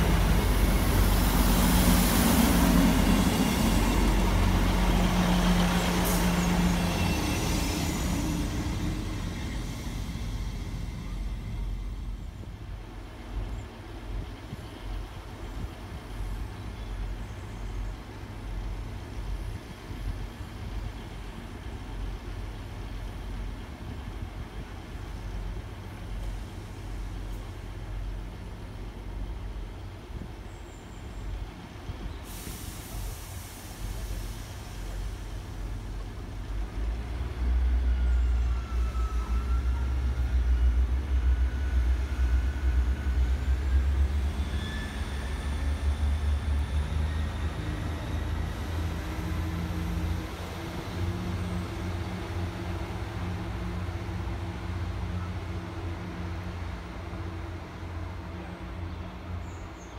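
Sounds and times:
train diesel engines rumbling: 0.0 - 59.9
hiss of air: 32.1 - 36.2.

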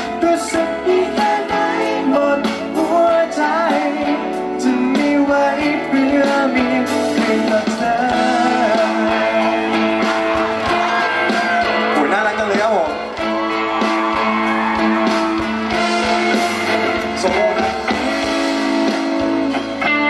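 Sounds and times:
man singing into a microphone: 0.0 - 9.6
electric guitar and band: 0.0 - 20.0.

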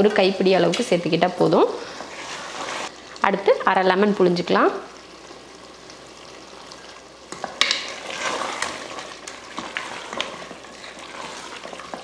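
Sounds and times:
food sizzling in a pot: 0.0 - 12.0
spatula scraping a pot: 1.9 - 2.9, 7.6 - 12.0.

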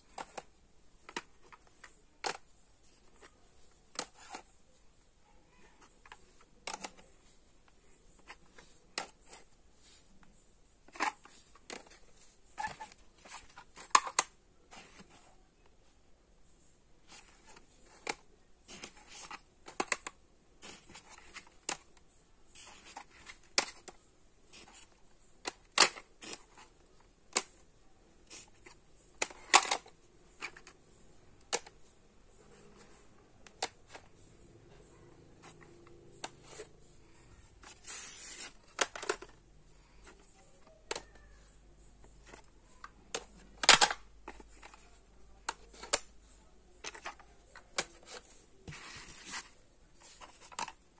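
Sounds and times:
plastic cassette cases clacking: 5.9 - 7.1, 10.9 - 15.1, 17.1 - 22.0, 22.6 - 27.6, 28.3 - 30.8, 38.5 - 39.4, 42.1 - 46.1, 46.8 - 50.8.

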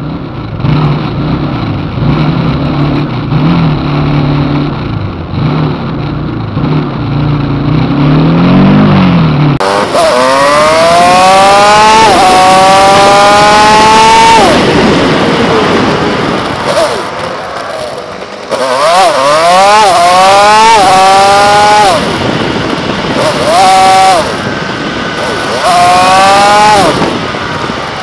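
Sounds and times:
motorcycle engine running: 0.0 - 28.0
wind rush: 9.6 - 28.0.

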